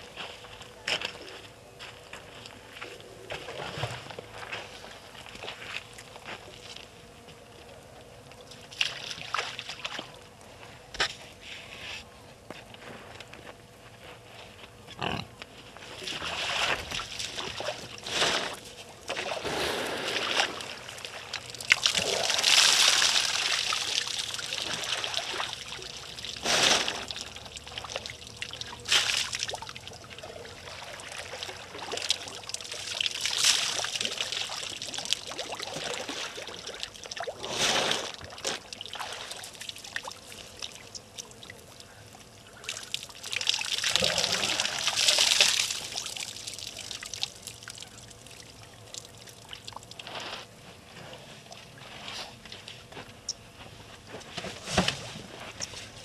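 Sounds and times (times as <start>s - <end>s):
water splashing and trickling: 8.3s - 10.4s, 16.0s - 50.4s.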